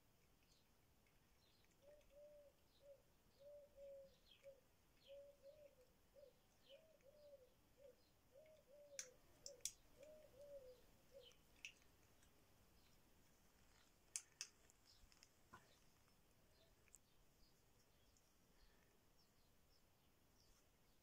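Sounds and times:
small birds chirping: 0.0 - 21.0
dove cooing: 1.8 - 11.4
sharp clicks: 8.9 - 10.2, 14.1 - 15.3.

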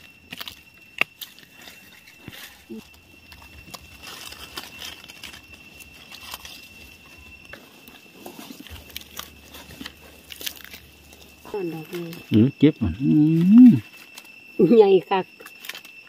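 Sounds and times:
dry leaves crackling and rustling: 0.0 - 12.3
faint steady high tone: 10.8 - 16.0.

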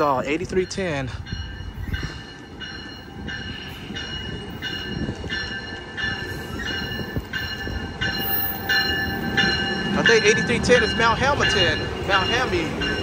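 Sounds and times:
train rumbling: 0.0 - 13.0
train warning bell ringing: 0.0 - 13.0.

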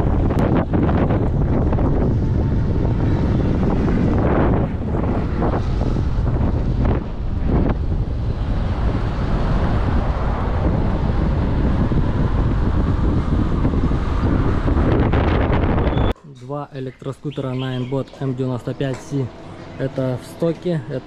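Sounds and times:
wind buffeting microphone: 0.0 - 16.2.

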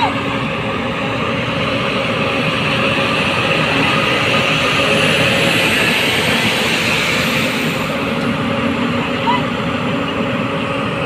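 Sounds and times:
heavy diesel engines rumbling: 0.0 - 11.0.

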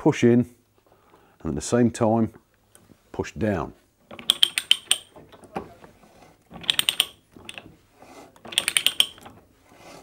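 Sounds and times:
ratchet clicking: 4.1 - 5.1, 6.6 - 7.7, 8.4 - 9.4.

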